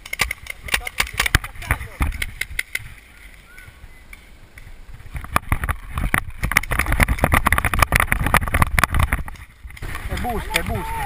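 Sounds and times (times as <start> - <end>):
wind rumbling on microphone: 0.0 - 11.0
rapid rattling and rustling: 5.0 - 10.8.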